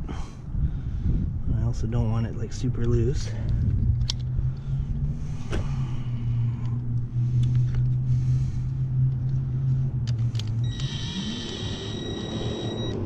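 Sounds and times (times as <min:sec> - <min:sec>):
steady low hum: 0:00.0 - 0:13.0
cordless drill whine: 0:10.6 - 0:13.0.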